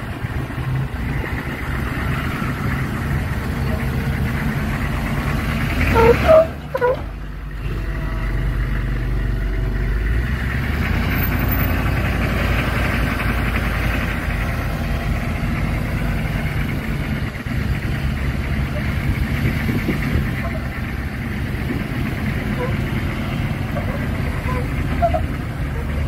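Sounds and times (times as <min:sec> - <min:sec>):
engine running at low revs: 0:00.0 - 0:26.0
short high-pitched squeaks: 0:05.9 - 0:07.1, 0:23.8 - 0:25.9.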